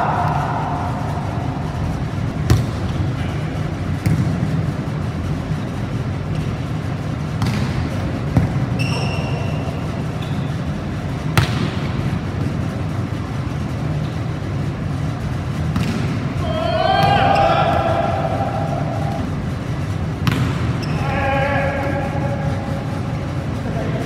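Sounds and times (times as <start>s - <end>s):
steady low hum: 0.0s - 24.0s
shoe squeak: 8.7s - 10.7s, 20.8s - 21.2s.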